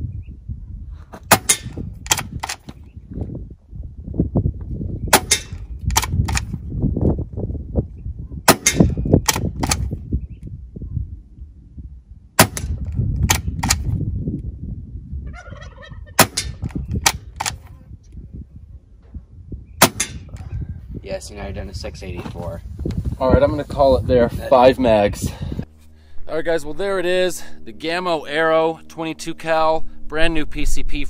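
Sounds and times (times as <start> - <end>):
wind rumbling on microphone: 0.0 - 31.0
air rifle shots cracking: 1.3 - 2.6, 5.1 - 6.5, 8.5 - 9.9, 12.4 - 13.9, 16.2 - 17.6, 19.8 - 20.4
cocking lever clicks: 1.5 - 2.8, 5.3 - 6.5, 8.6 - 9.9, 13.3 - 13.9, 16.4 - 17.7.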